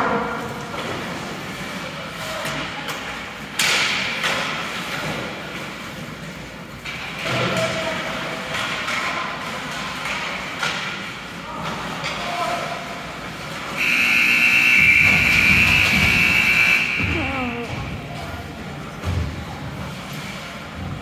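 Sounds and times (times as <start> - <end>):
steady rink noise: 0.0 - 21.0
hockey play thuds and knocks: 2.4 - 5.8, 6.8 - 12.3, 14.8 - 18.3, 18.9 - 21.0.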